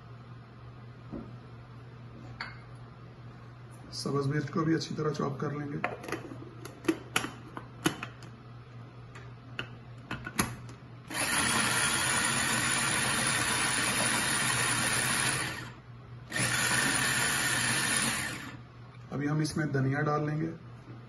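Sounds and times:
food chopper motor running: 0:11.1 - 0:18.6.

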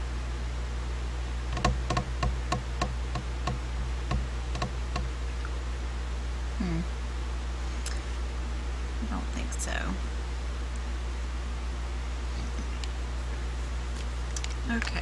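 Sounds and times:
fingernail tapping on glass: 0:01.5 - 0:05.1.

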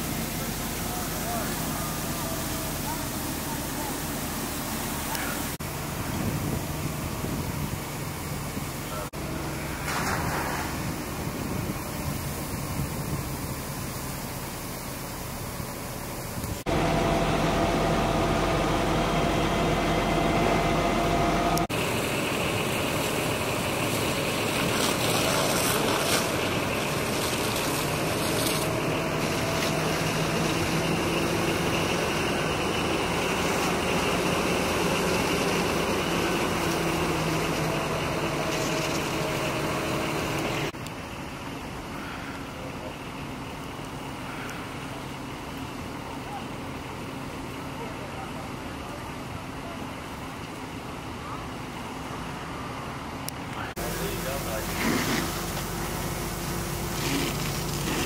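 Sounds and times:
hose stream hissing: 0:00.0 - 0:16.9, 0:21.5 - 0:40.8, 0:53.7 - 0:58.0
fire engine running: 0:00.0 - 0:58.0.

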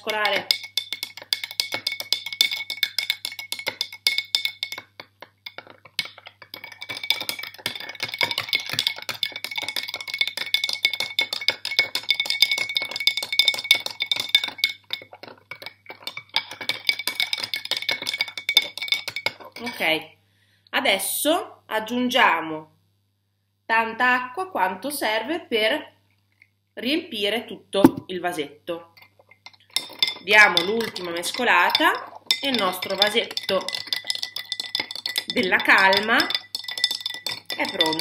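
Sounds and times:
spoon clinking in glass jar: 0:00.0 - 0:19.8, 0:29.0 - 0:38.0.

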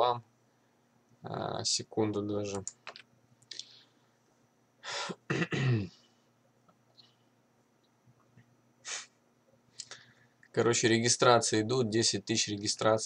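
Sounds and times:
faint steady hum: 0:00.0 - 0:13.0
man clearing his throat: 0:05.1 - 0:06.0.

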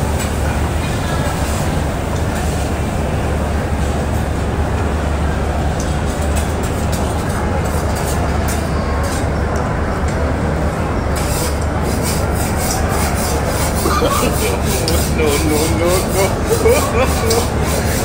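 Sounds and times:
low ventilation hum: 0:00.0 - 0:18.0
murmur of diners chatting: 0:00.0 - 0:18.0
dishes and utensils clicking: 0:12.6 - 0:18.0.

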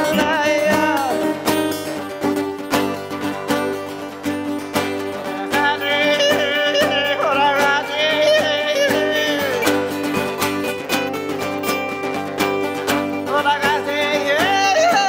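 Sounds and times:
acoustic guitars playing: 0:00.0 - 0:15.0
woman singing wordless melody: 0:05.4 - 0:09.6, 0:13.3 - 0:15.0.

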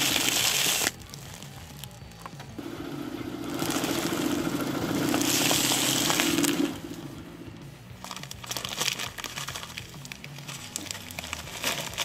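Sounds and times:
tyre crushing crinkling rice cakes: 0:00.0 - 0:02.3, 0:05.0 - 0:06.6, 0:08.0 - 0:12.0.

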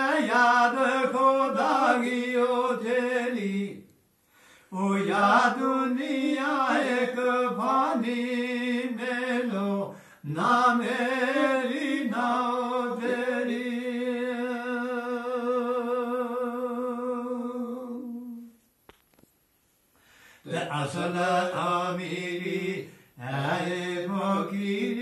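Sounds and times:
man chanting: 0:20.5 - 0:25.0.

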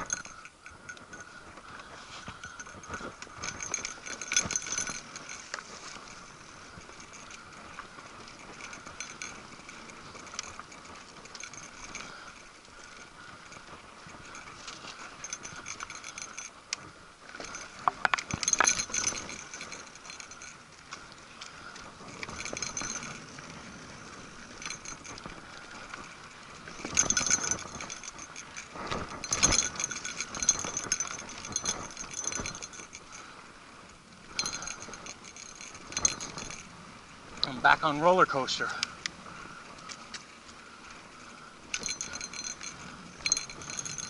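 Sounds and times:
mountain bike rattling: 0:00.0 - 0:44.0.

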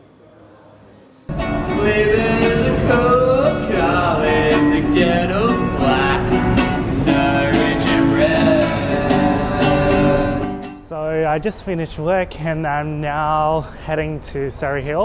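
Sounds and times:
acoustic guitar strumming: 0:01.3 - 0:10.9
man singing: 0:01.3 - 0:11.4.

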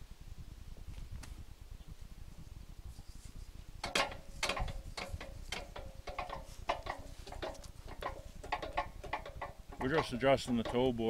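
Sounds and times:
metal ratchet clicking: 0:03.8 - 0:11.0.

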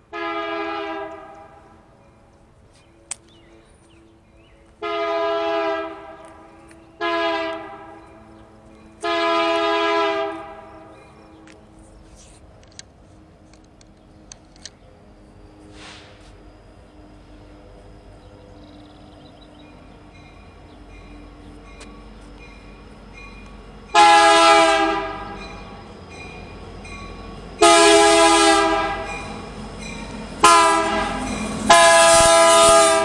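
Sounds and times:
locomotive air horn blasts: 0:00.0 - 0:01.7, 0:04.8 - 0:06.4, 0:07.0 - 0:08.0, 0:09.0 - 0:10.9, 0:23.9 - 0:25.5, 0:27.6 - 0:29.4, 0:30.4 - 0:33.0.

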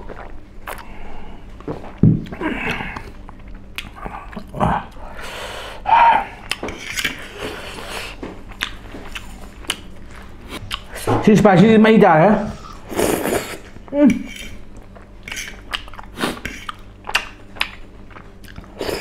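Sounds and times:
person breathing: 0:04.9 - 0:06.4.

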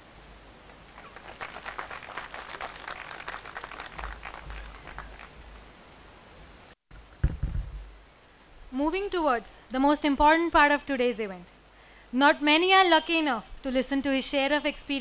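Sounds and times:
audience applause: 0:00.9 - 0:05.6
low thud: 0:07.2 - 0:07.9.

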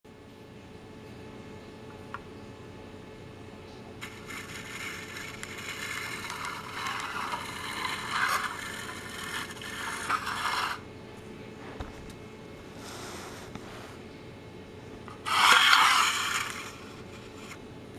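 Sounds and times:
plastic toy scraping on tiles: 0:04.0 - 0:10.8, 0:15.1 - 0:17.6.

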